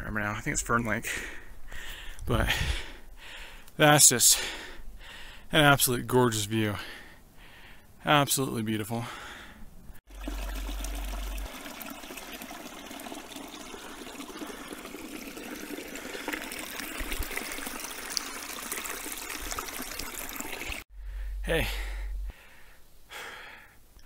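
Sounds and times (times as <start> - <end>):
stream splashing over rocks: 10.1 - 20.8.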